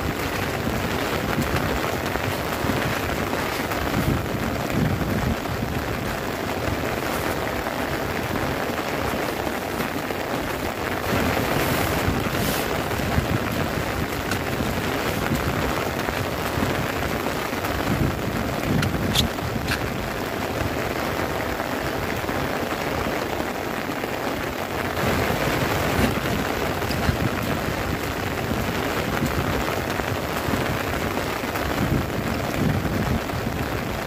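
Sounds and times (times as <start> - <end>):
heavy rain drumming on a tent: 0.0 - 34.0.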